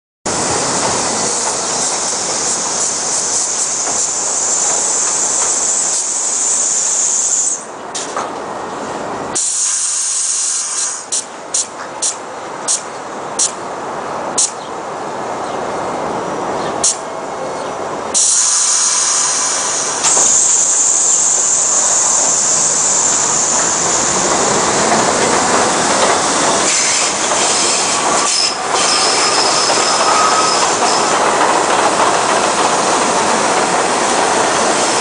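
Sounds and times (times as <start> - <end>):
sharp clicks of slowing train: 0.3 - 8.5, 9.3 - 13.7, 14.3 - 14.7, 16.6 - 35.0
train wheels rushing on rails: 0.3 - 35.0.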